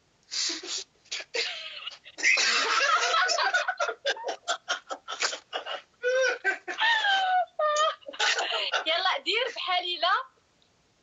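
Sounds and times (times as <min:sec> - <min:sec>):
woman laughing hard: 0:01.4 - 0:09.0.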